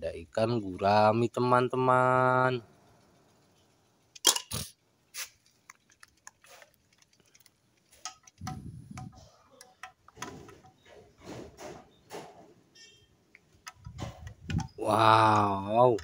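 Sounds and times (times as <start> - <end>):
plastic toy clicks and taps: 13.4 - 16.0.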